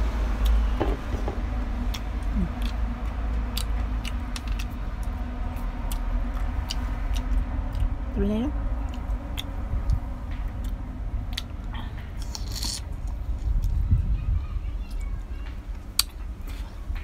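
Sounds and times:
wind rumbling on microphone: 0.8s - 12.2s, 12.8s - 15.4s
person chewing: 1.9s - 8.0s, 8.8s - 13.8s.

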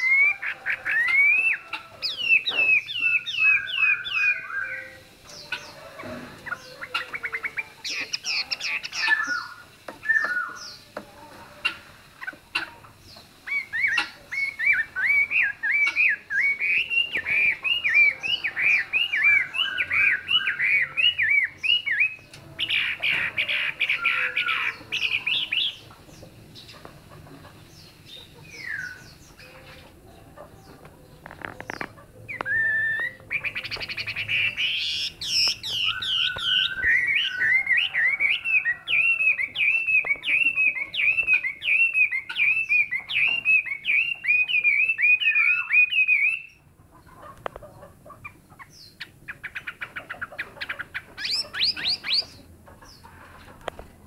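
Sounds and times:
bird singing whistled notes: 0.0s - 5.8s, 6.5s - 10.8s, 13.1s - 25.9s, 27.8s - 29.5s, 31.7s - 46.6s, 51.2s - 52.4s.

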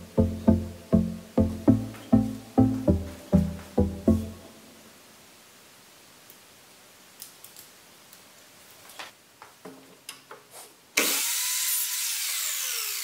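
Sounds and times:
miter saw cutting with whine: 11.0s - 13.0s.

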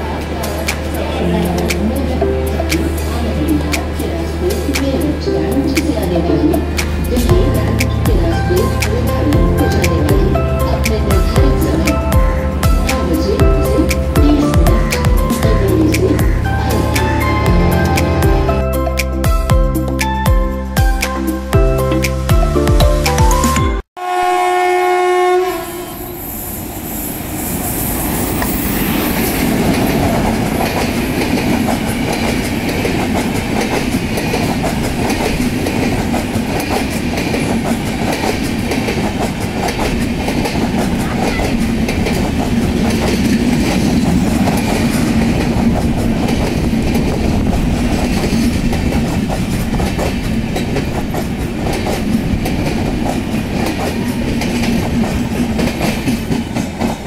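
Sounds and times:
train wheels rumbling on rails: 0.0s - 18.6s, 26.5s - 57.0s
clickety-clack over rail joints: 29.2s - 57.0s.

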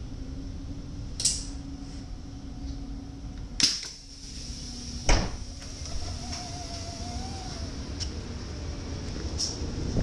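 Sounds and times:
train interior hum: 0.0s - 10.0s.

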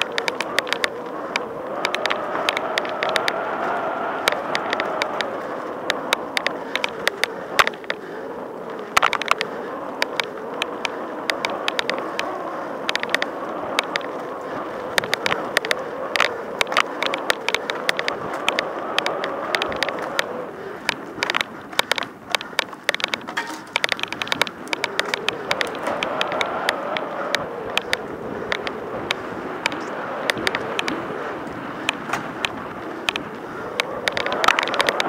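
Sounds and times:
bike clicks and rattles: 0.0s - 35.0s
bike tyres rumbling on dirt: 0.0s - 35.0s.

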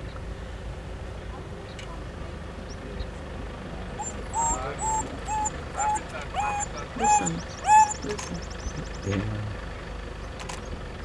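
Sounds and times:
animal calling: 4.0s - 9.2s.

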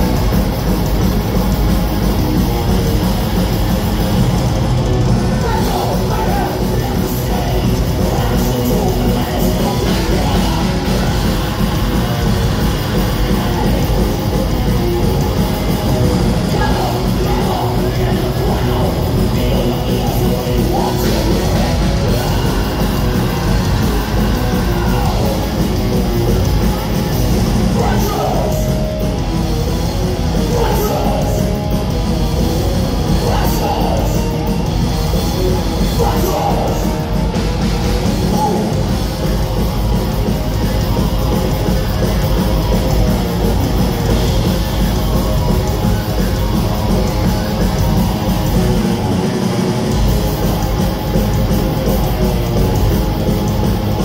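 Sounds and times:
thrash metal band playing: 0.0s - 54.0s
shouted vocals: 5.1s - 14.2s, 15.3s - 29.0s, 30.4s - 31.6s, 38.0s - 38.9s.

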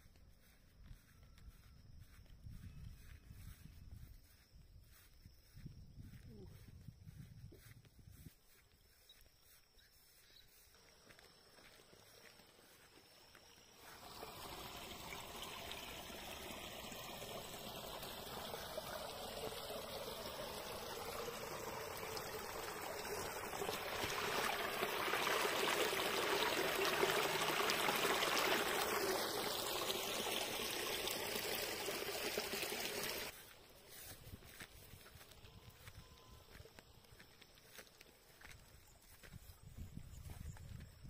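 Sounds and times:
stream trickling over rocks: 11.0s - 39.2s.

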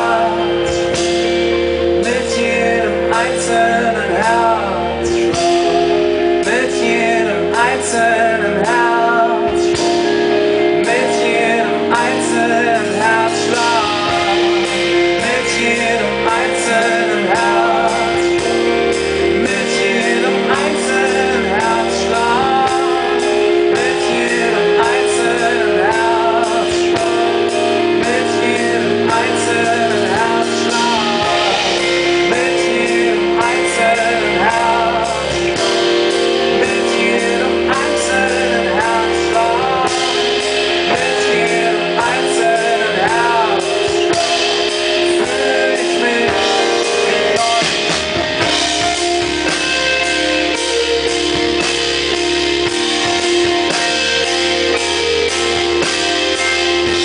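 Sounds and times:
electric guitar: 0.0s - 57.0s
keyboard chords: 0.0s - 57.0s
low bass line: 0.0s - 57.0s
wavering melody: 0.0s - 57.0s.

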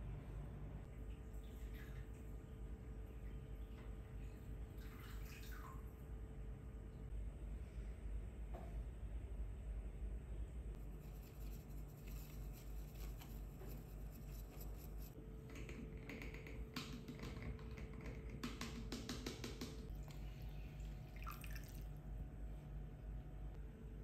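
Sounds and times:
coffee pouring: 19.9s - 21.9s.

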